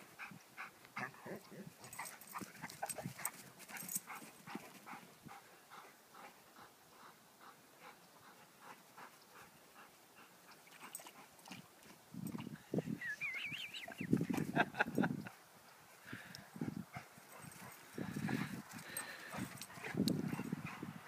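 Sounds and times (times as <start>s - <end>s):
dog panting: 0.0s - 11.6s, 16.6s - 21.0s.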